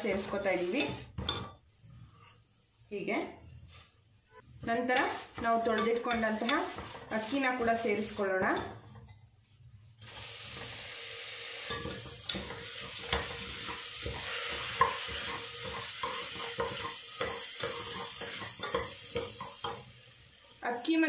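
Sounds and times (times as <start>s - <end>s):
rice sizzling in hot fat: 0.0s - 2.3s, 5.0s - 8.4s, 9.6s - 21.0s
spatula scraping pot: 0.0s - 2.4s, 4.5s - 9.2s, 11.7s - 19.8s.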